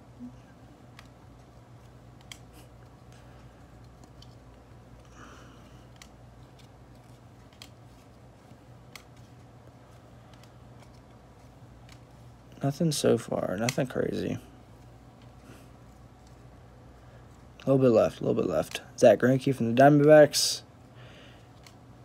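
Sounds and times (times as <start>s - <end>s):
low steady hum: 0.0s - 22.0s
card edges clicking: 0.8s - 12.2s, 13.6s - 13.9s.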